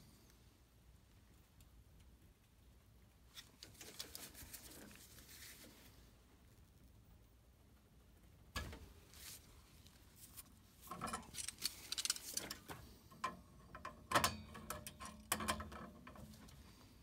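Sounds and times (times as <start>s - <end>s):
hand tools clicking and rattling on metal: 10.9s - 16.5s.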